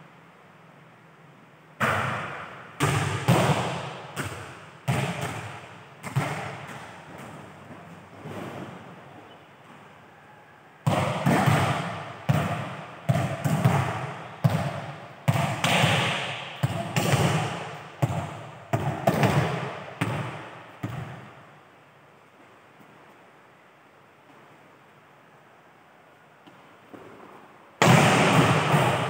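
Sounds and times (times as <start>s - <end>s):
volleyball smacks echoing: 1.8s - 7.6s, 10.8s - 21.4s, 27.8s - 29.0s.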